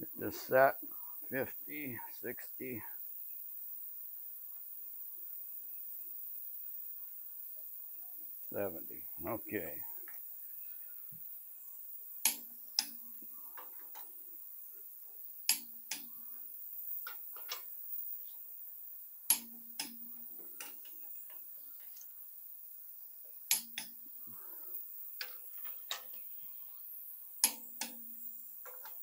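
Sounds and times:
soft ratchet clicks: 0:09.9 - 0:29.0
torque wrench double click: 0:27.4 - 0:28.0.

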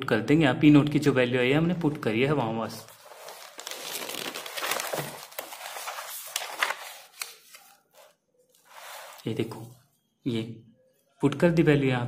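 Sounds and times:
paper rustling and crinkling: 0:01.8 - 0:09.8.

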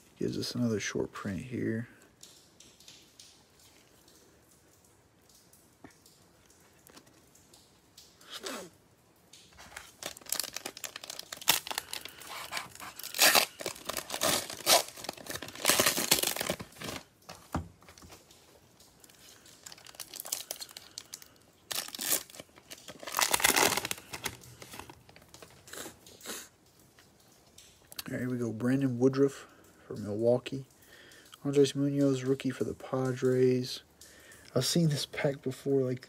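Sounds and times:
plastic wrapper crinkling and tearing: 0:09.5 - 0:26.3.

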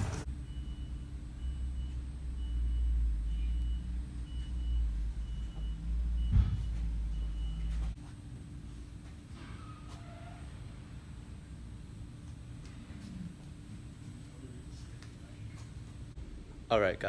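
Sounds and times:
quiet steady hum: 0:00.1 - 0:17.0
thump: 0:06.3 - 0:06.7.

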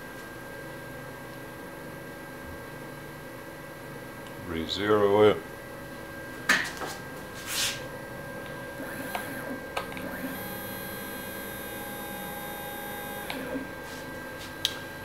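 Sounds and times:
steady hum: 0:00.0 - 0:15.0
stepper motor whine: 0:07.9 - 0:15.0.

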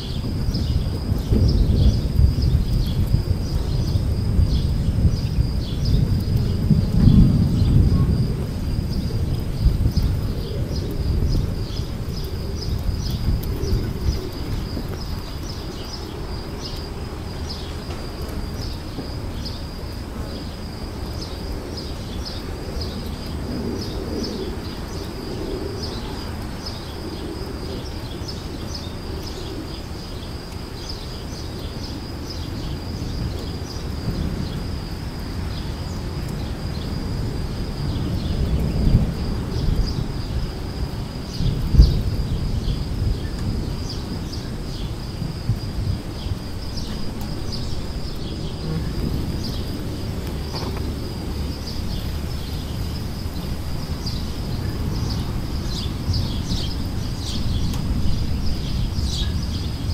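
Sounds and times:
low rumbling noise: 0:41.3 - 0:59.9.

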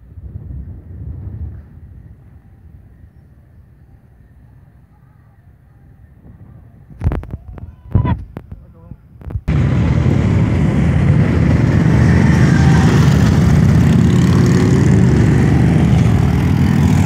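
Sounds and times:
motorcycle engines rumbling: 0:09.5 - 0:17.0.

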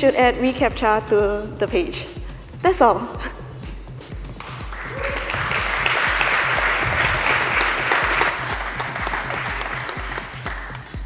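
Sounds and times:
background music with low beat: 0:00.0 - 0:11.0
audience applauding: 0:04.4 - 0:11.0.

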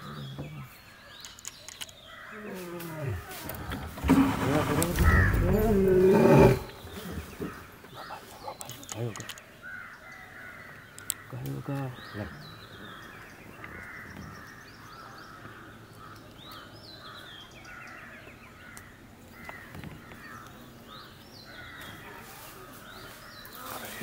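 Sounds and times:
crows cawing: 0:04.3 - 0:07.8, 0:09.2 - 0:11.7, 0:13.5 - 0:20.6, 0:21.5 - 0:24.0.

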